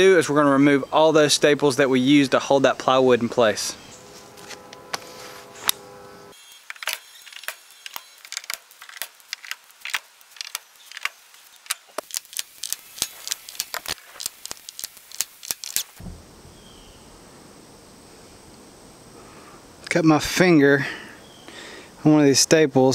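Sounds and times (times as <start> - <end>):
staples prying out of wood: 6.6 - 15.9.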